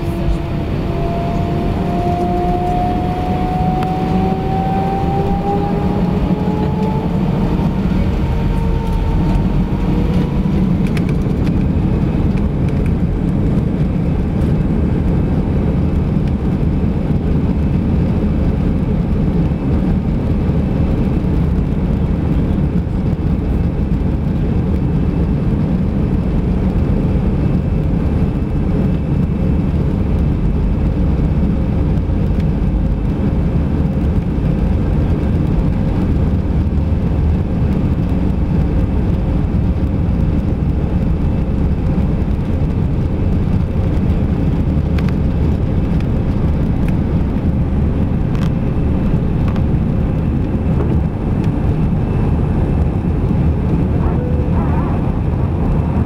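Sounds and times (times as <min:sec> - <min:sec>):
airliner rumbling on runway: 0:00.0 - 0:56.0
jet engines spooling up: 0:50.2 - 0:56.0.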